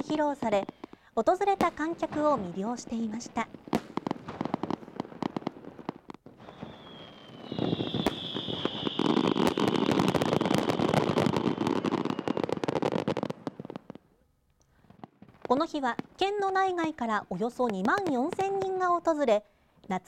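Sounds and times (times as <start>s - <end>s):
fireworks crackling: 0.0s - 14.1s, 14.7s - 19.4s
falling whistle: 6.4s - 12.5s.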